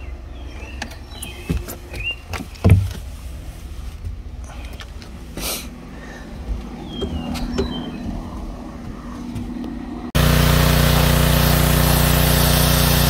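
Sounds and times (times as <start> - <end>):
low steady rumble: 2.9 - 12.2
handling knocks and clicks: 6.6 - 9.8.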